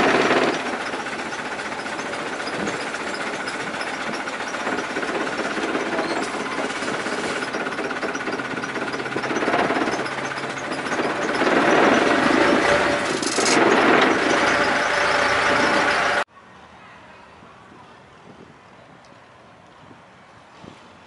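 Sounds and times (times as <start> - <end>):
boat engine rattling drone: 0.0 - 16.3.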